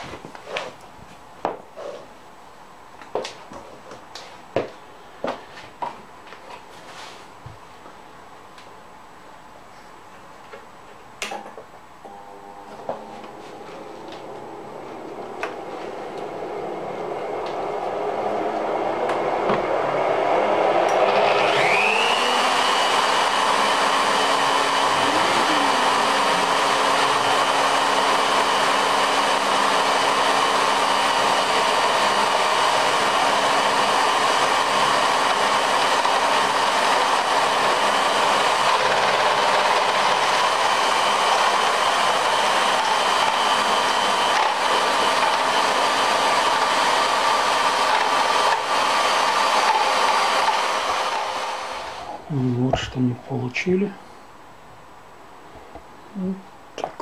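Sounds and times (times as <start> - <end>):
router motor whine: 20.8 - 52.1.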